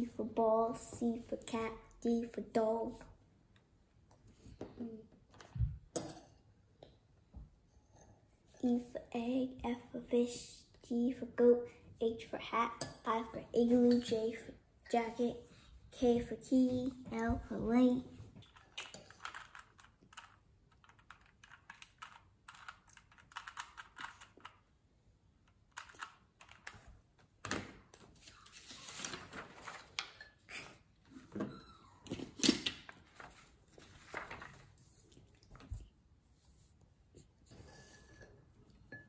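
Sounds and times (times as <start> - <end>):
spoon scraping ceramic bowl: 37.5 - 39.0.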